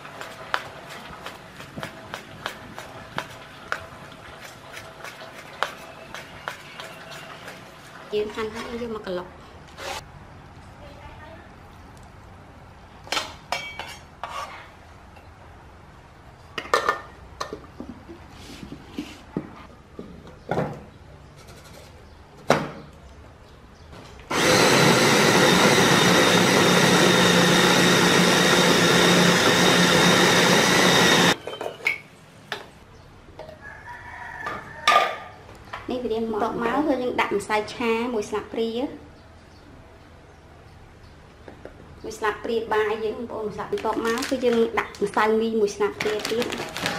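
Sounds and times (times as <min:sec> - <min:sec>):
electric food chopper motor: 0:24.3 - 0:31.4.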